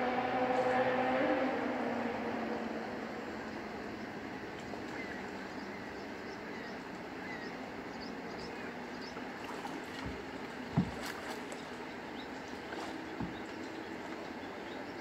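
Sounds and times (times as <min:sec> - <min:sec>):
dogs splashing in water: 0:09.4 - 0:14.5.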